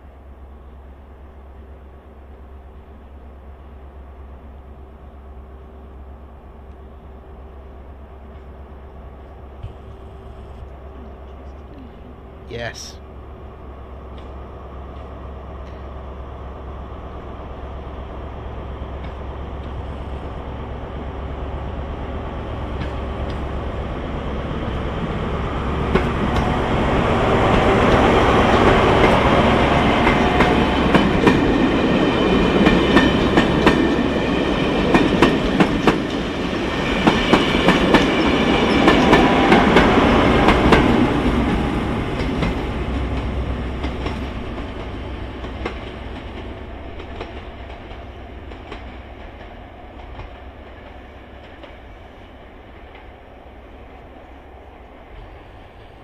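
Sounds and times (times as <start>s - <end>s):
diesel train engine passing: 0.0s - 56.0s
wheels clacking over rail joints: 24.4s - 52.0s.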